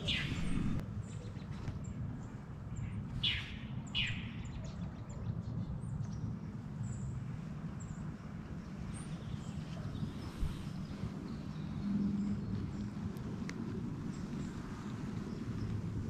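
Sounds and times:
bird calls sweeping downward: 0.0 - 0.8
faint high bird chirps: 0.0 - 1.6
low steady rumble: 0.0 - 16.0.

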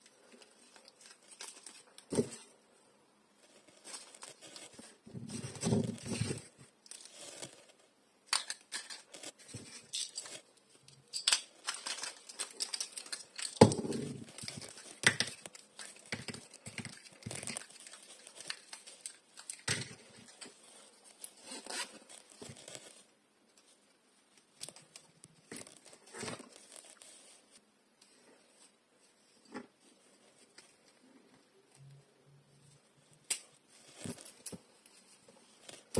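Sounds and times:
paper crinkling and tearing: 0.4 - 2.5, 11.3 - 23.1.

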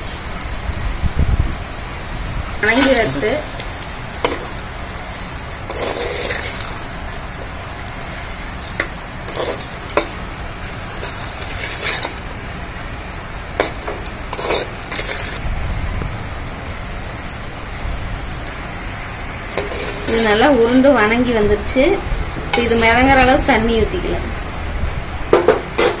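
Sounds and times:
steady background noise: 0.0 - 26.0
spoon scraping a clay pot: 4.2 - 6.8, 7.7 - 12.3, 13.6 - 15.4, 19.6 - 20.3, 22.6 - 23.0.

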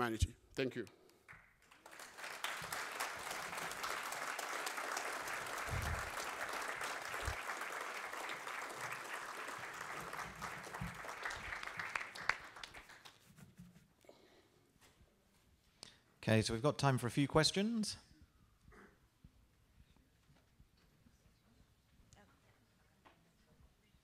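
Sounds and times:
audience applauding: 1.3 - 13.3.

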